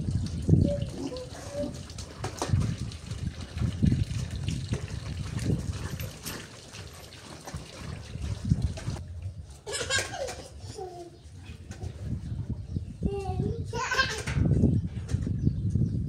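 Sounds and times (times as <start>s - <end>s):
water splashing and trickling: 0.0s - 9.5s.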